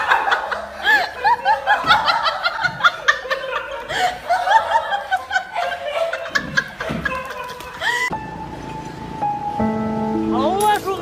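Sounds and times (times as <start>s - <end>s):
people giggling: 0.0s - 8.2s.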